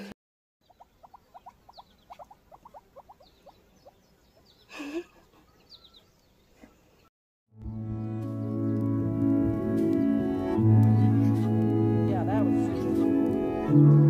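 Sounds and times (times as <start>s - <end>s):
guinea pig squeaking: 0.7s - 4.0s.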